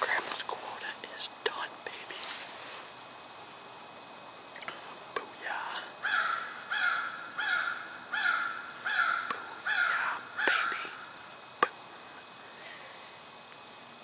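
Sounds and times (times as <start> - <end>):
crow cawing: 6.0 - 11.2.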